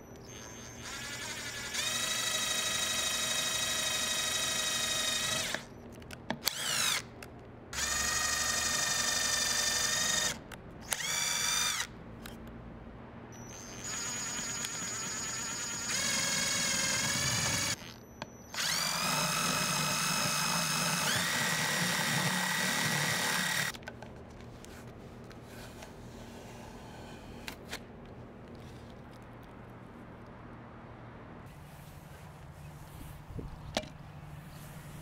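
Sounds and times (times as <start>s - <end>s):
electric drill whining: 0.2s - 5.7s, 6.4s - 7.0s, 7.8s - 11.9s, 13.4s - 23.8s.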